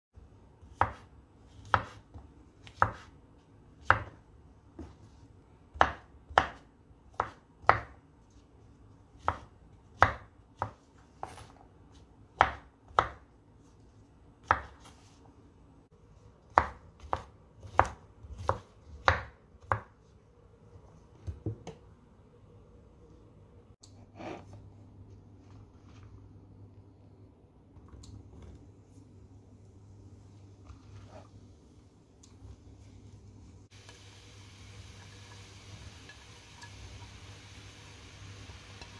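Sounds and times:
knife chopping on wooden board: 0.8s - 3.1s.

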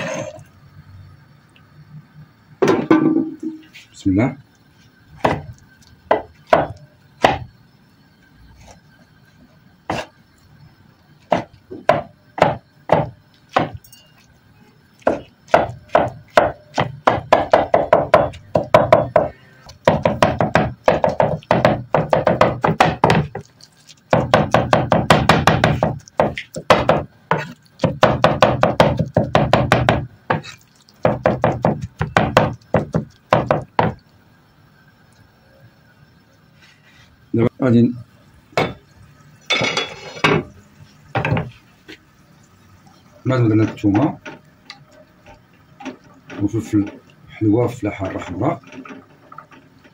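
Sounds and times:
cleaver chopping on wooden board: 6.1s - 7.4s, 11.3s - 13.8s, 19.9s - 23.4s, 24.1s - 30.4s.

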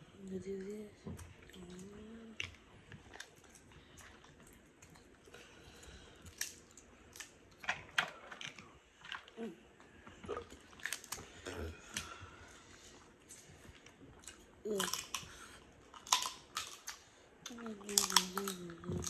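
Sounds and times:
chewing: 1.2s - 19.0s
shells cracking and snapping: 10.8s - 11.3s, 14.7s - 18.8s.

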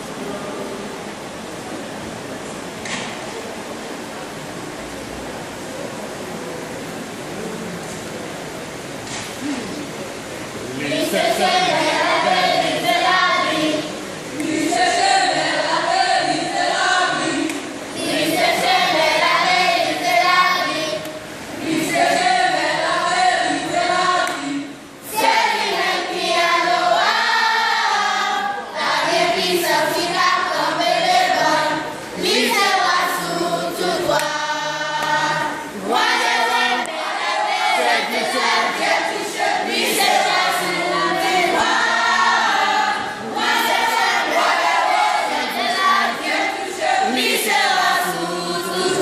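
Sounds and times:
girls choir singing: 10.6s - 49.0s.

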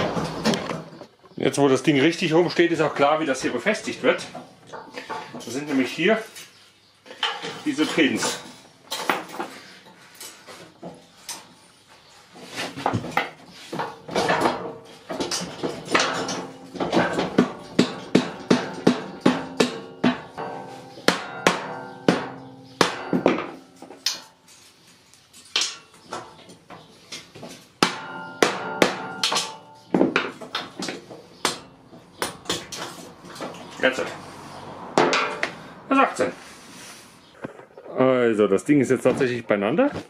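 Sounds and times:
hammer striking metal: 15.3s - 24.3s, 27.8s - 32.8s, 35.0s - 35.6s.

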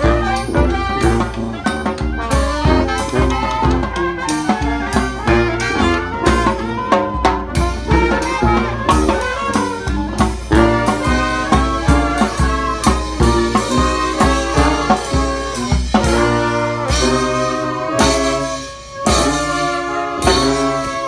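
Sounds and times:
bass drum beat: 0.0s - 19.6s
brass band playing jazz: 0.0s - 21.0s.

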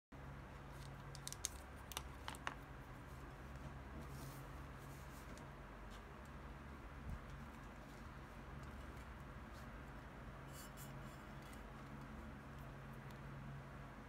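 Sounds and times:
low steady hum: 0.2s - 14.0s
soft rustle: 3.0s - 6.1s.

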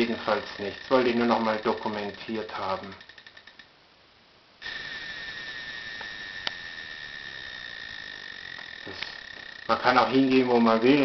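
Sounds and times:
high electronic whine: 0.0s - 3.6s, 4.6s - 11.0s
hiss: 4.6s - 7.7s.

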